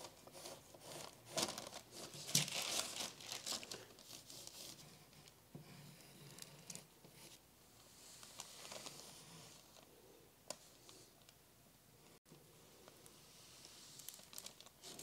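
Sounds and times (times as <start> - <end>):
pencil scratching on paper: 0.0 - 1.2.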